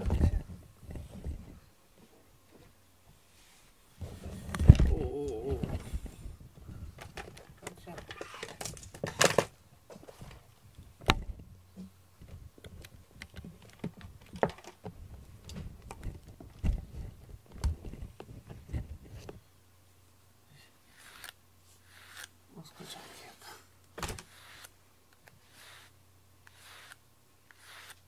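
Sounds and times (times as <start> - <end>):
wire brush through cat fur: 25.4 - 28.0.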